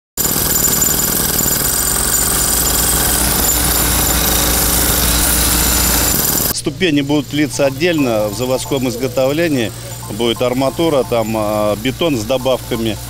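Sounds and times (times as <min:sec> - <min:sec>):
jackhammer breaking concrete: 0:00.2 - 0:06.5.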